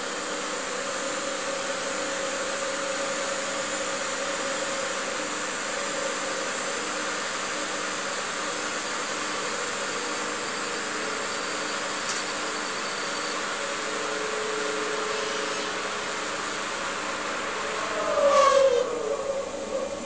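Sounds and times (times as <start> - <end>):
small click: 12.1 - 12.3.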